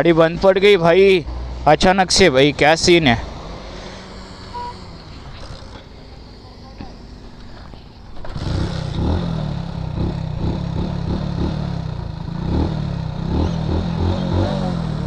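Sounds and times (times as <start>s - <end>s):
motorcycle engine revving unevenly: 2.2s - 15.0s.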